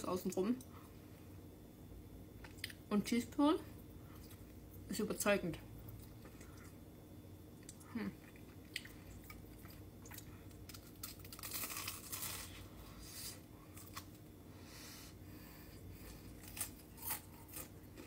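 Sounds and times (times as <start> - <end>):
crispy food crunching: 7.6 - 14.3, 16.0 - 18.0.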